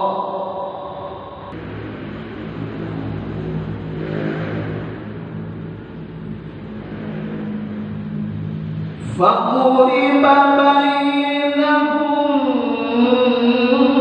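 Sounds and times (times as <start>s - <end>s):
low engine hum: 0.8s - 10.4s.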